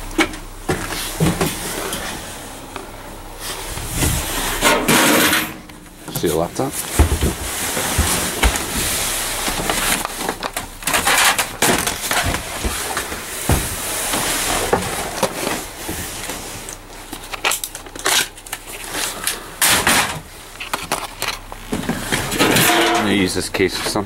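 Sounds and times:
cardboard crunching and rustling: 0:06.2 - 0:19.2.

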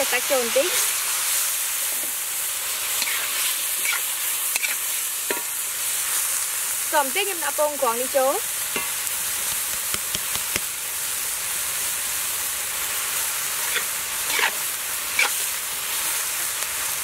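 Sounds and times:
food sizzling in oil: 0:00.0 - 0:17.0
metal ladle scraping wok: 0:02.8 - 0:05.6, 0:13.6 - 0:15.6.

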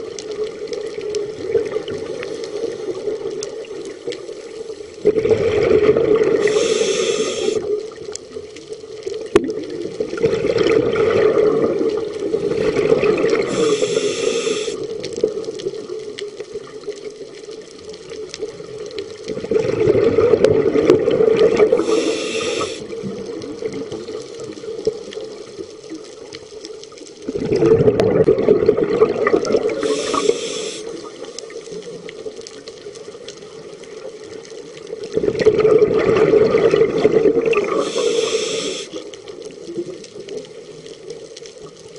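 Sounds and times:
exhaled bubbles rushing: 0:00.6 - 0:02.3, 0:05.0 - 0:07.8, 0:09.2 - 0:15.9, 0:18.6 - 0:25.0, 0:27.2 - 0:31.4, 0:35.0 - 0:39.1
hissing inhale through regulator: 0:02.1 - 0:03.3, 0:06.2 - 0:07.8, 0:13.3 - 0:14.9, 0:21.6 - 0:23.0, 0:29.6 - 0:31.4, 0:37.6 - 0:39.1.

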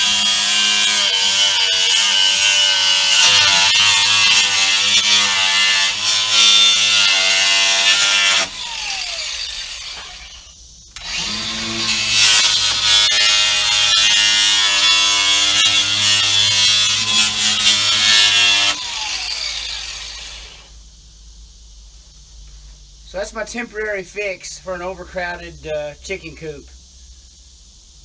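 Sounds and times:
die grinder grinding wood: 0:00.0 - 0:20.7.

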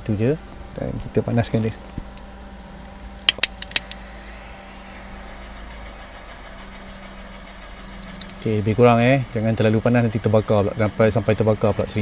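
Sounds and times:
steady low hum: 0:00.0 - 0:12.0
sharp clicks: 0:03.2 - 0:04.0.

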